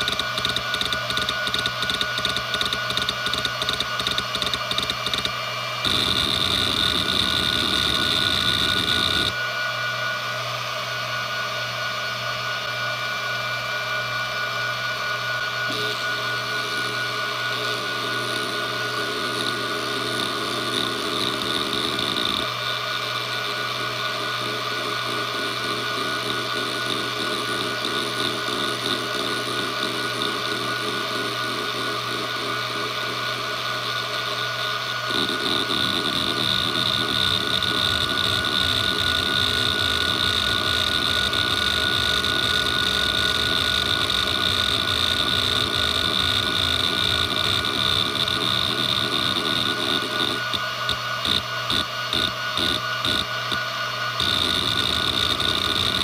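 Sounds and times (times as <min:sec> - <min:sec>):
hard drive head chatter: 0:00.0 - 0:09.4, 0:17.5 - 0:22.5, 0:35.1 - 0:56.0
hard drive whine: 0:00.0 - 0:56.0.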